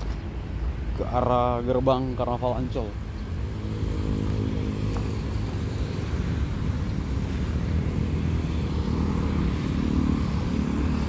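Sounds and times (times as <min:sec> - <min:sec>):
traffic rumble: 0:00.0 - 0:11.0
motorbike and car engines passing: 0:03.0 - 0:11.0.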